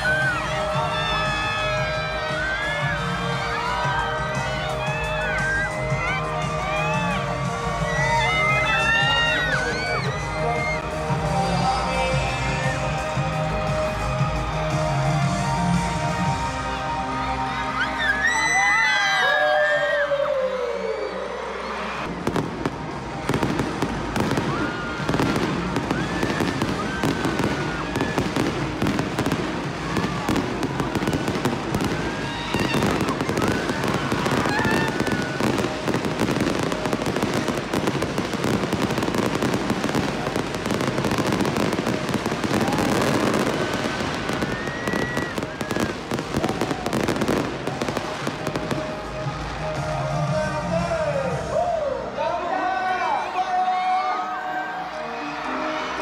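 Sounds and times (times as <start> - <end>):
crowd shouting: 0.0 - 11.1, 23.2 - 50.2, 51.4 - 56.0
concert music: 0.0 - 56.0
fireworks cracking and popping: 22.1 - 49.9.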